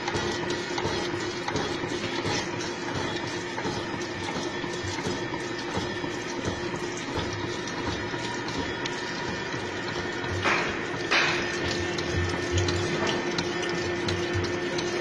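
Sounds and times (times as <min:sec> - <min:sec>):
cutting oil splashing: 0:00.0 - 0:15.0
gear cutting machine humming: 0:00.0 - 0:15.0.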